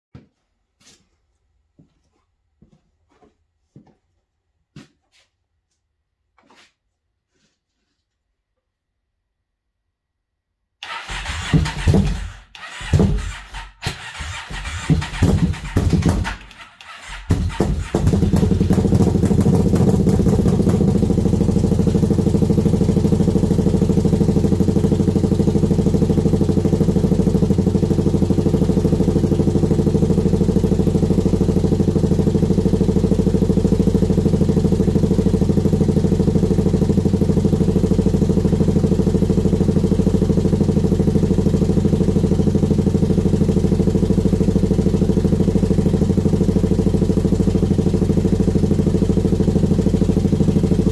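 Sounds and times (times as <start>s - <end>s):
atv engine idling: 10.8s - 50.9s.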